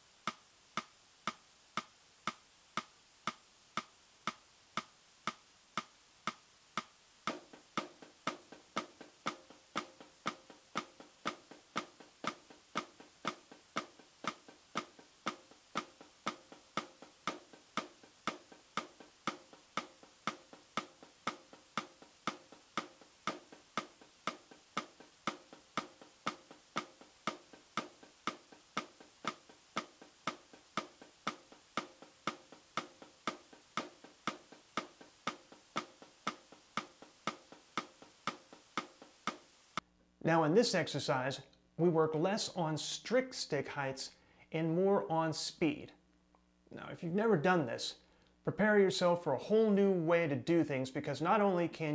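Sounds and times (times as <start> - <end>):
metronome clicking: 0.2 - 39.9
snare drum strokes: 6.8 - 39.6.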